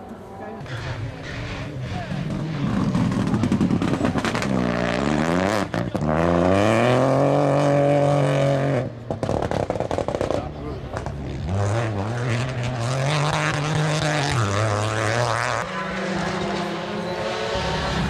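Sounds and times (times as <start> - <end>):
exhaust crackles: 0.6 - 6.1
rally car engine revving: 0.6 - 18.0.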